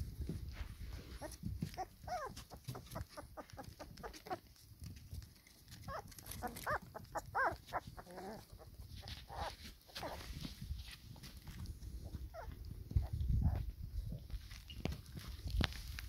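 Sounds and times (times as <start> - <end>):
light clicks and scuffles: 0.1 - 16.0
puppies whining and yelping: 1.0 - 4.5, 5.8 - 10.4, 12.0 - 13.6.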